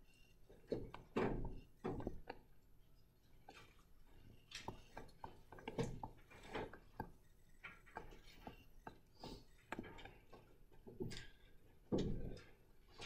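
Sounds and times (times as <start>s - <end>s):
faint light taps and clicks: 4.5s - 12.5s.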